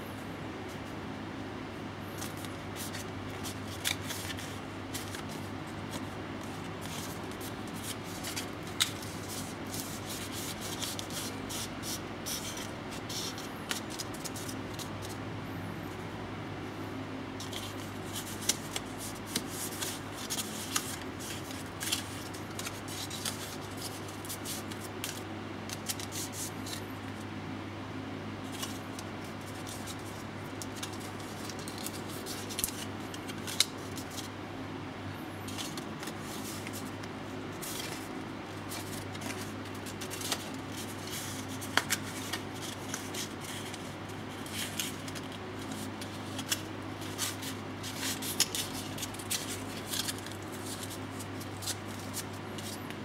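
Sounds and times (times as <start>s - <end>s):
steady low hum: 0.0s - 53.0s
stiff paper rustling and crinkling: 2.2s - 15.2s, 28.4s - 34.3s, 35.5s - 52.9s.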